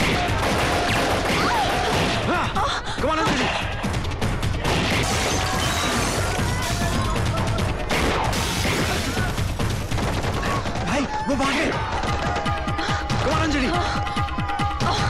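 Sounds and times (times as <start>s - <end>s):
pistol shots: 0.0s - 2.3s
background film music: 0.0s - 15.0s.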